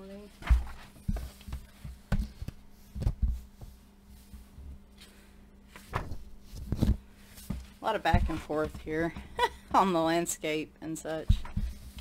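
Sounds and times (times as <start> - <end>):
paper pages rustling: 0.4 - 8.5.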